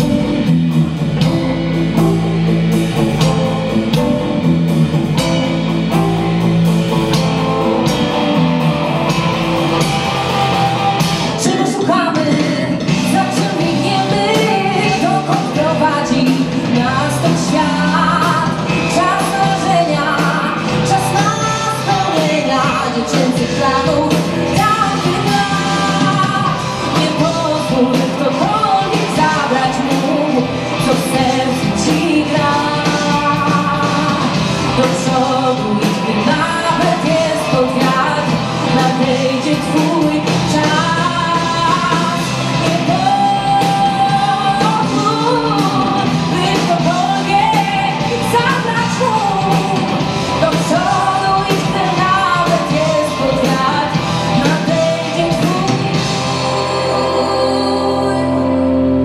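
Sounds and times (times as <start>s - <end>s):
live rock band playing: 0.0s - 59.0s
woman singing: 11.1s - 59.0s.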